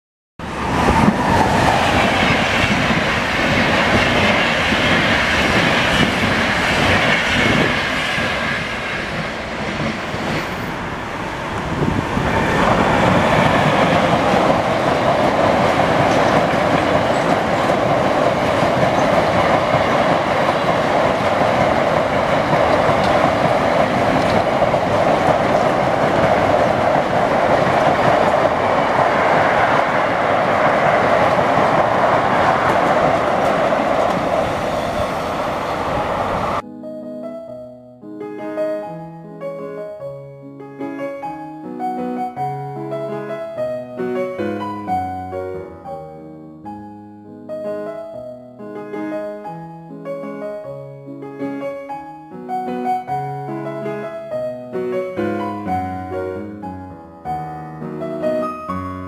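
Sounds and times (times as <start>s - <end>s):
freight train wheels rumbling on rails: 0.4s - 36.6s.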